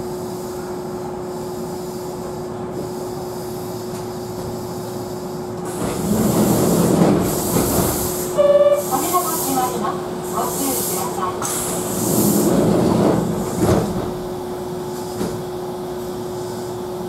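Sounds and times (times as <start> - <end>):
train car hum: 0.0 - 17.0
sliding doors opening with air rush: 5.5 - 16.1.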